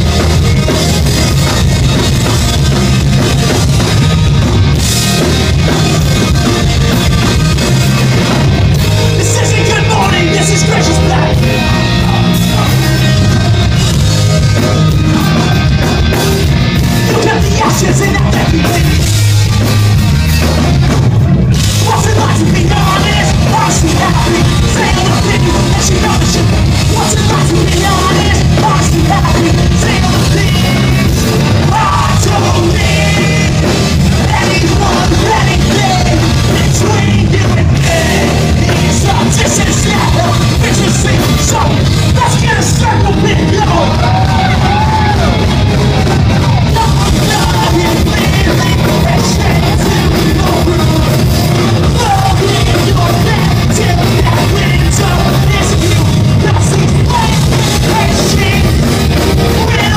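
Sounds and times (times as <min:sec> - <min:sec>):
pop-punk band playing live: 0:00.0 - 0:59.9
person singing: 0:08.8 - 0:19.2, 0:21.7 - 0:59.9.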